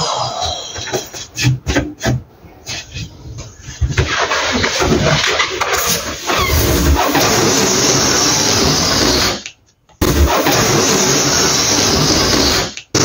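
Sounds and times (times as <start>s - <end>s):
balloon rubbing: 0.4s - 9.4s, 10.0s - 13.0s
electric balloon pump running: 4.1s - 9.4s, 10.0s - 13.0s.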